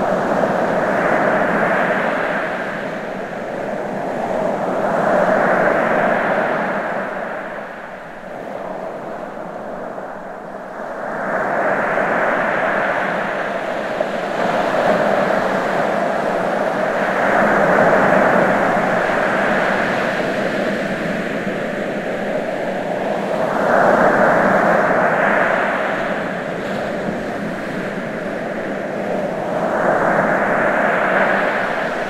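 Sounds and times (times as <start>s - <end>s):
ocean surf washing in: 0.0s - 32.0s.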